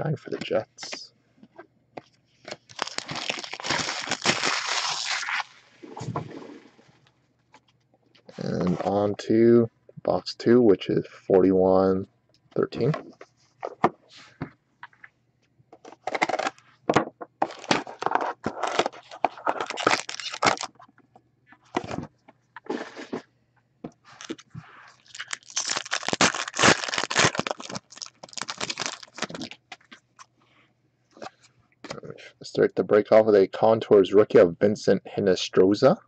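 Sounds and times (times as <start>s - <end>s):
plastic wrap and foil ripping: 2.7s - 5.6s, 17.5s - 20.7s, 25.0s - 29.6s
cardboard and cards scraping: 22.6s - 23.2s.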